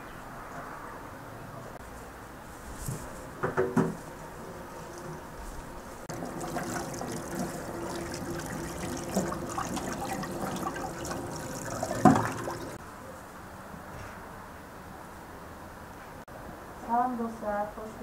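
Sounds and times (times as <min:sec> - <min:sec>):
tap water splashing in sink: 0:06.1 - 0:12.8.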